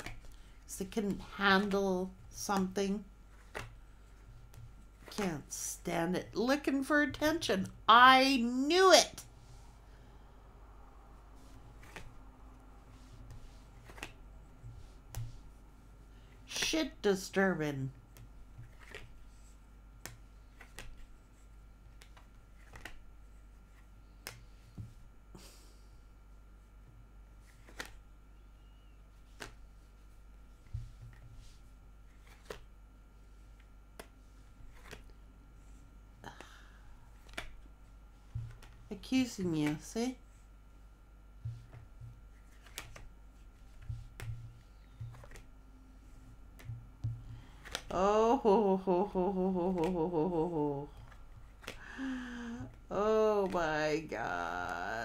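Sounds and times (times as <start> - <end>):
cards sliding swish: 11.4 - 12.2, 12.8 - 14.2, 18.6 - 21.1, 22.0 - 23.0, 27.4 - 28.0, 29.2 - 29.7, 30.6 - 32.7, 42.4 - 43.1, 43.7 - 45.5, 47.6 - 47.9
cards clicking: 11.8 - 12.2, 13.3 - 14.2, 18.1 - 19.3, 20.0 - 21.1, 21.9 - 23.1, 24.1 - 24.5, 27.5 - 28.0, 29.2 - 29.6, 32.2 - 32.7, 33.9 - 35.2, 37.2 - 37.7, 42.4 - 43.1, 43.8 - 45.5, 46.4 - 48.0, 51.0 - 51.9.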